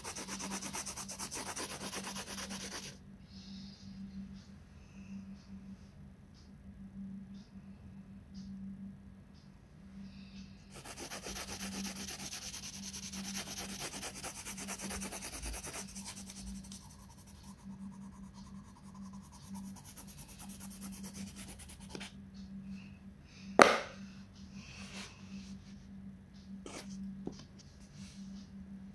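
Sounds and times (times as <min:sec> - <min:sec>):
colored pencil scratching on paper: 0:00.0 - 0:03.0, 0:10.7 - 0:22.1
sharp knock: 0:23.6 - 0:24.0.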